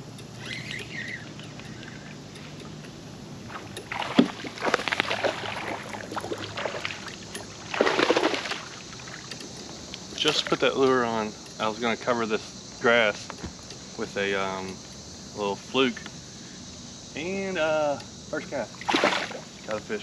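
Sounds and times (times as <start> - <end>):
fish splashing at surface: 3.5 - 9.3, 18.8 - 19.5.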